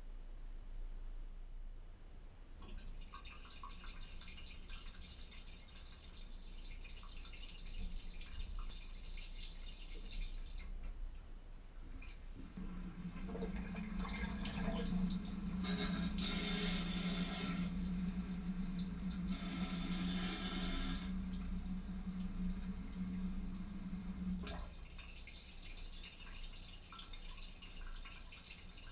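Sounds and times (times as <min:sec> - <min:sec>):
water trickling and dripping: 0:02.6 - 0:28.9
pump humming: 0:12.4 - 0:25.6
water spraying: 0:14.2 - 0:24.2.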